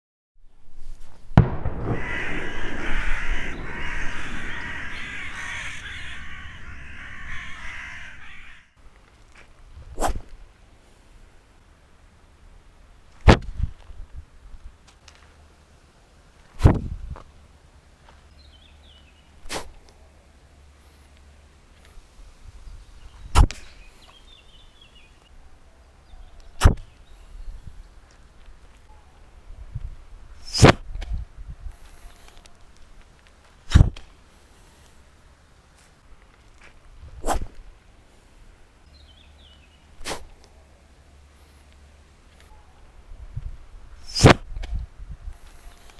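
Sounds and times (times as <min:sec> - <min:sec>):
harsh cawing calls: 0:01.9 - 0:08.8
arm swinging whoosh: 0:09.9 - 0:10.3, 0:37.2 - 0:37.6
short sharp crack: 0:19.4 - 0:19.8, 0:30.4 - 0:30.8, 0:40.0 - 0:40.3, 0:44.0 - 0:44.7.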